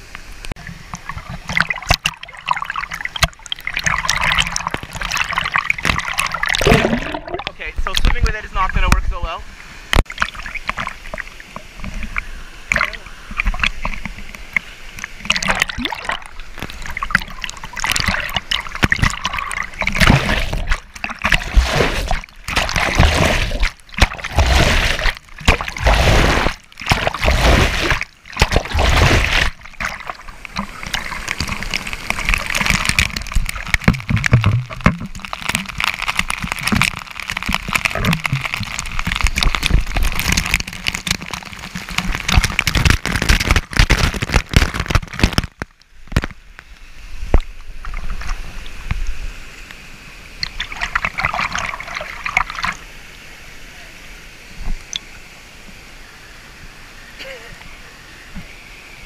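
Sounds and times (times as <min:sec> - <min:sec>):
water sloshing and splashing: 0:00.5 - 0:46.4, 0:47.2 - 0:49.4, 0:50.3 - 0:52.9
waterfall spray splattering: 0:10.0 - 0:45.7.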